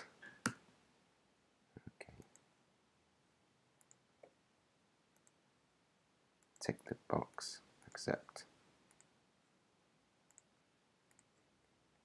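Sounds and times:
faint computer mouse clicks: 0:03.8 - 0:04.3, 0:05.2 - 0:05.4, 0:10.3 - 0:10.5, 0:11.1 - 0:11.5.

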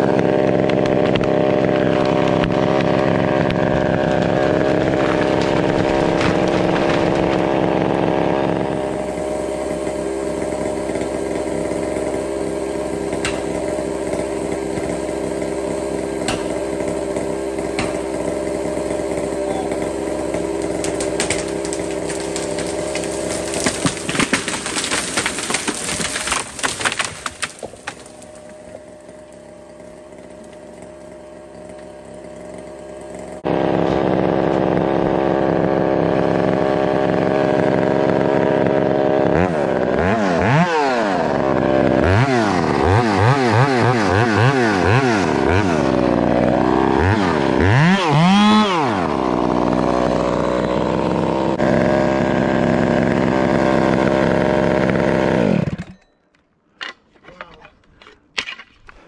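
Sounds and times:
wood cracking and snapping: 0:00.0 - 0:08.9, 0:20.3 - 0:32.4
chainsaw running: 0:00.0 - 0:56.0.

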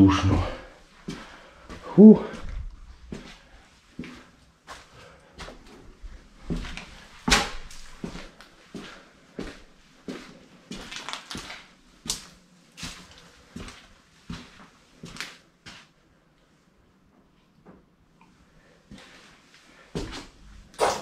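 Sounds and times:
footsteps on tiled floor: 0:00.0 - 0:16.0, 0:18.9 - 0:21.0.

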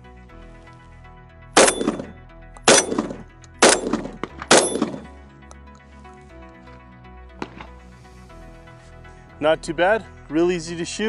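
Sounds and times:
background music: 0:00.0 - 0:11.0
shotgun shots: 0:01.6 - 0:02.1, 0:02.7 - 0:05.1.

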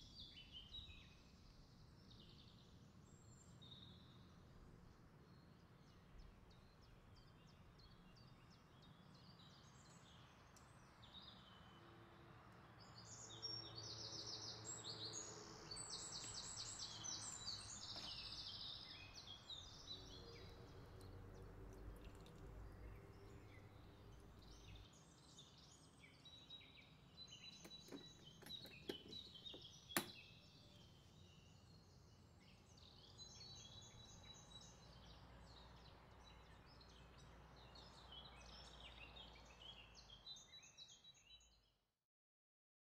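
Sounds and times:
small birds chirping: 0:12.8 - 0:41.6.

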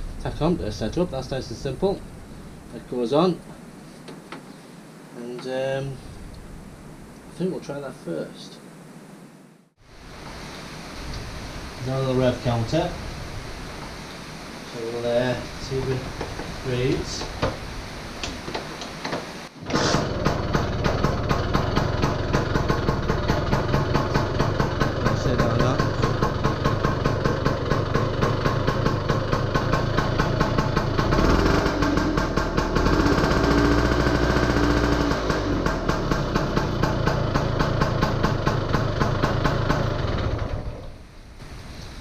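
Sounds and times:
engine kick-started: 0:18.2 - 0:41.0
two-stroke engine fast idle: 0:19.6 - 0:40.9.

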